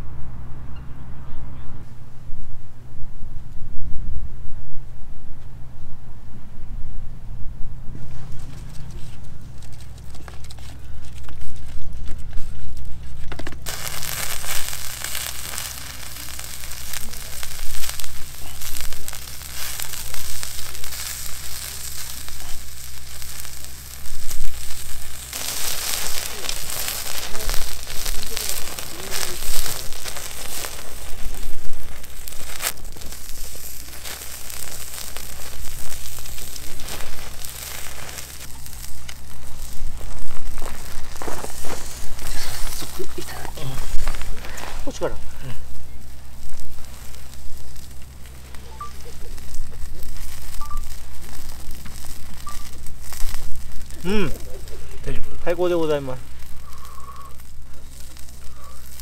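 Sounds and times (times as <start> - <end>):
skewers sizzling on a grill: 8.0 - 59.0
fat spitting and crackling: 8.2 - 59.0.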